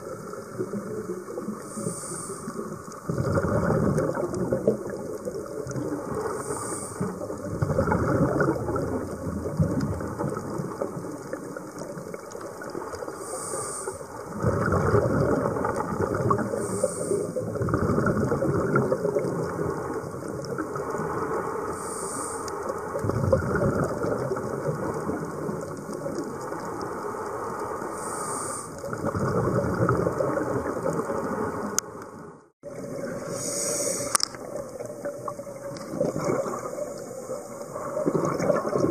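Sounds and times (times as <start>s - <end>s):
underwater bubbling: 0.0s - 38.9s
regulator hiss: 1.6s - 2.9s, 6.2s - 7.2s, 13.1s - 14.2s, 16.5s - 17.4s, 21.3s - 22.8s, 27.1s - 28.8s, 33.2s - 34.2s.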